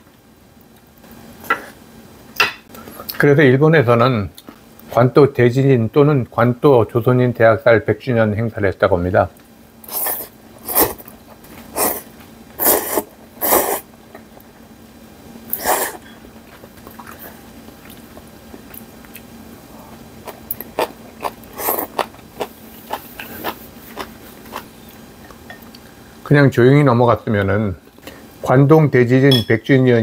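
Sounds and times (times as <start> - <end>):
person slurping noodles: 9.9 - 11.0, 11.7 - 13.9, 15.5 - 16.0, 20.8 - 22.1.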